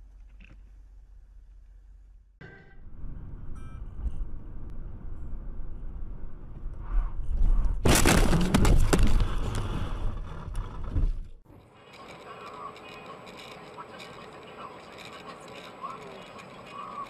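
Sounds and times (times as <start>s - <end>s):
vehicle rumbling: 0.0s - 17.0s
car collision crunching: 7.8s - 11.3s.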